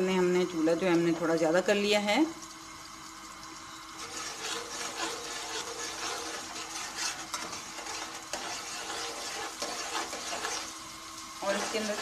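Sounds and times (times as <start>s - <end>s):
onions sizzling in oil: 0.0s - 12.0s
metal spatula scraping pan: 4.0s - 10.8s, 11.4s - 12.0s.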